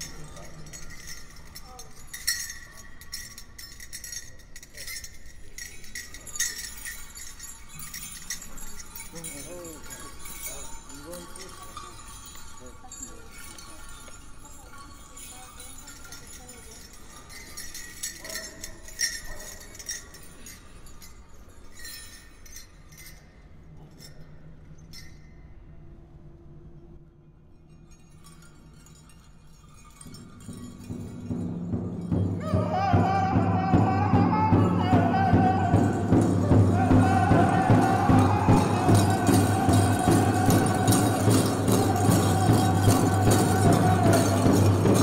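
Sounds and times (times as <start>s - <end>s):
faint voices: 0.0s - 22.2s, 32.4s - 45.0s
small metal bells jingling: 0.0s - 26.2s, 27.4s - 45.0s.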